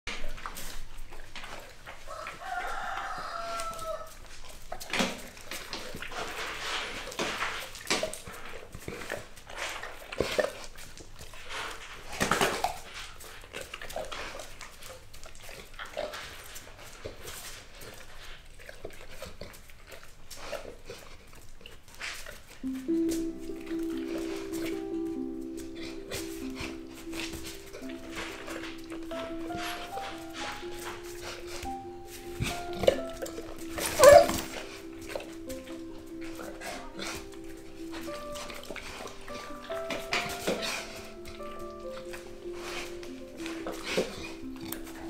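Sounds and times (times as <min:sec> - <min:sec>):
claws clicking on concrete floor: 0:00.1 - 0:22.6
dogs scuffling on concrete: 0:00.1 - 0:45.0
dog whining: 0:23.0 - 0:45.0.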